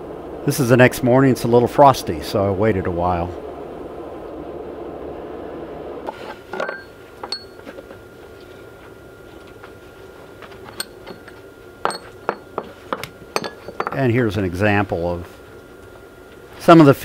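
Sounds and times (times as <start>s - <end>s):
metal clinks and knocks: 6.1s - 7.9s, 10.4s - 14.1s.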